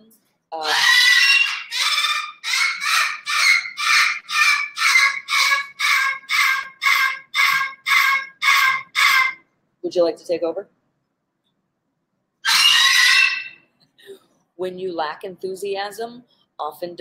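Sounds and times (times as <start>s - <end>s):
parrot screaming: 0.6s - 9.4s, 12.4s - 13.6s.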